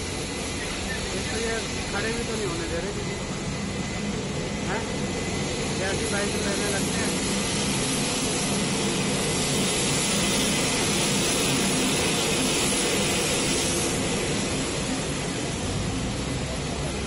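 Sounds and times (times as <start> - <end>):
aircraft engine rush: 0.0 - 17.0
bus engine rumble: 14.0 - 17.0.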